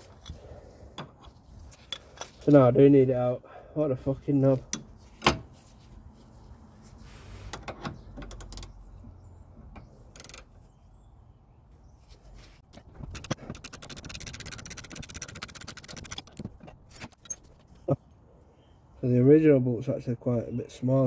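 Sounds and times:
fast ratchet clicking: 13.0s - 16.4s.

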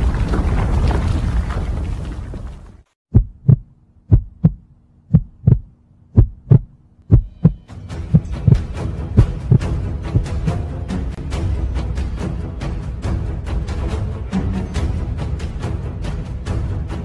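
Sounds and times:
heartbeat thumps: 3.1s - 10.5s.

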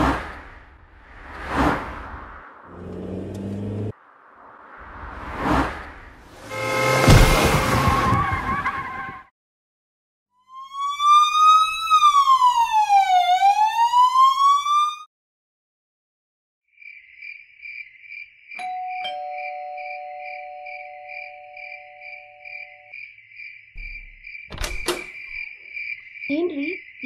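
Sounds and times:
emergency vehicle siren wailing: 10.4s - 15.1s
crickets chirping: 16.7s - 18.7s, 19.8s - 27.0s.

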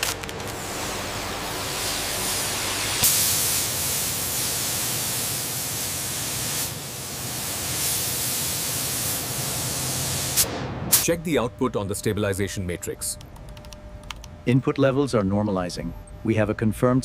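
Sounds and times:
paint spray gun hissing: 0.6s - 11.1s.

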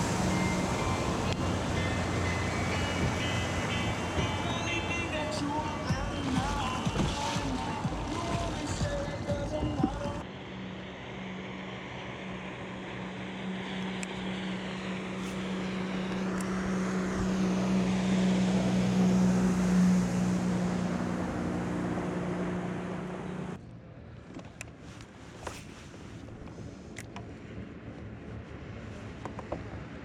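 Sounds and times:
passing engine drone: 0.0s - 23.6s.

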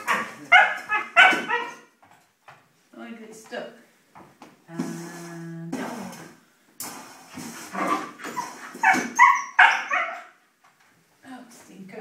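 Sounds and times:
puppy barking and yipping: 0.0s - 1.9s, 8.2s - 10.4s.

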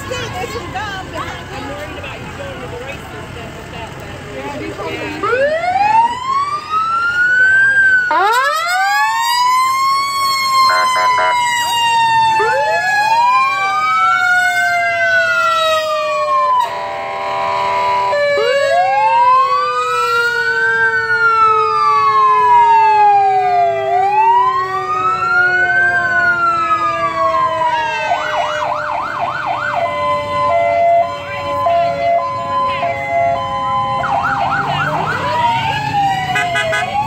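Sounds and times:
siren wailing: 5.2s - 37.0s
siren yelp: 5.2s - 37.0s
horn blast: 36.4s - 37.0s.

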